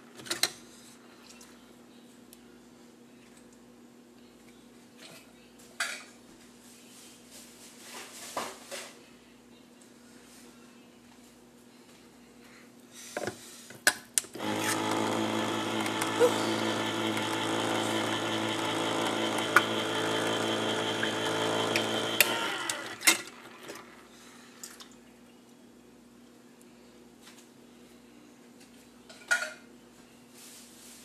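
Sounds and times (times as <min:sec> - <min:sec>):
electric can opener humming: 0:14.4 - 0:24.1.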